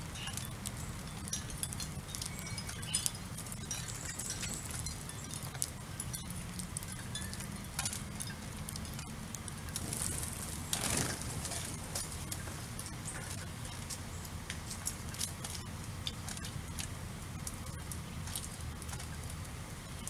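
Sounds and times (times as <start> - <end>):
sparrows chirping: 0.0 - 9.0, 9.7 - 14.3
birds pecking at seed: 0.0 - 20.0
steady low hum: 0.0 - 20.0
rush of wings: 9.8 - 11.8.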